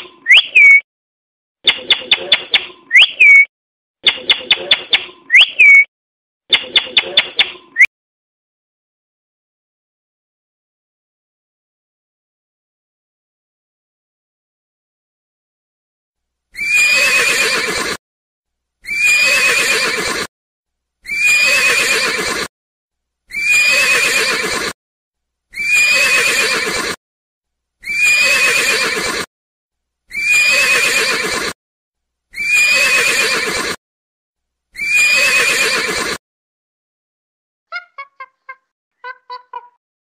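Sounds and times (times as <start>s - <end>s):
horse whinnying: 16.6s - 18.0s, 18.8s - 20.3s, 21.0s - 22.5s, 23.3s - 24.8s, 25.5s - 27.0s, 27.8s - 29.3s, 30.1s - 31.6s, 32.3s - 33.8s, 34.8s - 36.2s.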